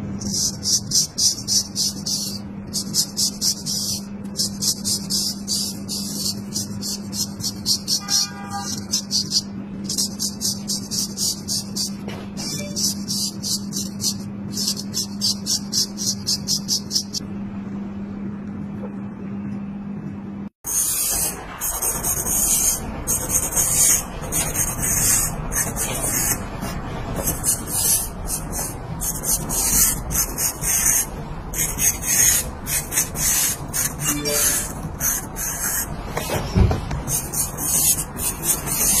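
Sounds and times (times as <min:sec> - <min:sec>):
steady low hum: 0:00.0 - 0:39.0
razor rasping on stubble: 0:00.2 - 0:12.0, 0:27.2 - 0:35.9, 0:37.1 - 0:39.0
razor scraping stubble: 0:37.1 - 0:39.0.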